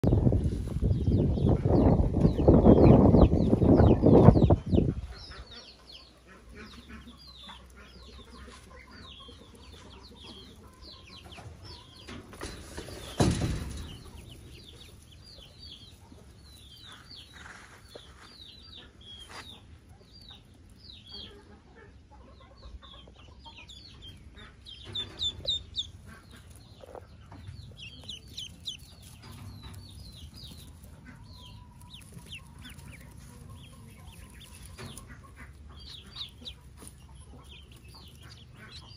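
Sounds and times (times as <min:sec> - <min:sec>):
ducklings peeping: 0:00.0 - 0:38.9
rustle: 0:16.6 - 0:18.4.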